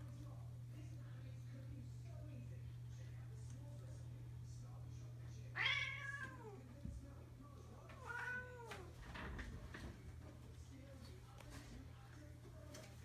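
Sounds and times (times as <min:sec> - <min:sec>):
cat meowing: 0:05.6 - 0:06.6, 0:08.0 - 0:08.9.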